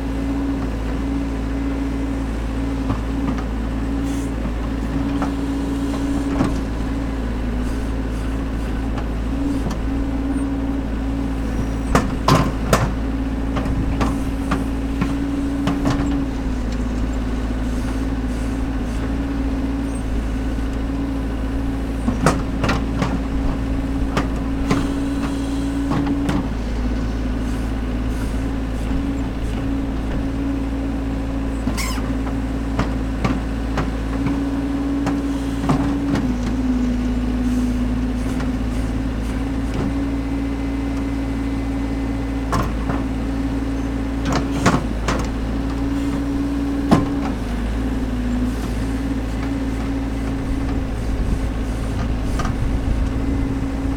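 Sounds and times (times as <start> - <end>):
diesel engine running: 0.0 - 53.9.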